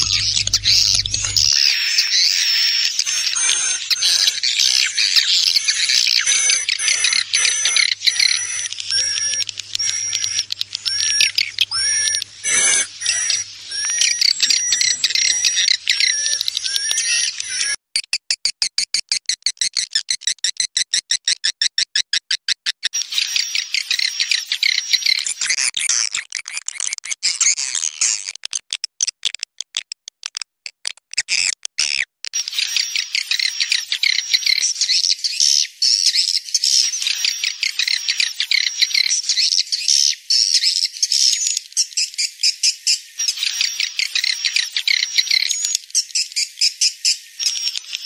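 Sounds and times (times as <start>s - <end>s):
birds twittering and clicking: 0.0s - 17.8s, 22.9s - 25.6s, 32.4s - 48.0s.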